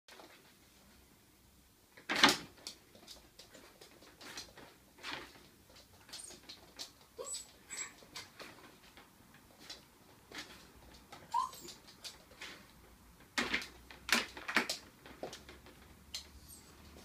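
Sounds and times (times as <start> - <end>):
dog whining and whimpering: 7.2 - 8.1, 11.3 - 11.8, 16.4 - 16.8.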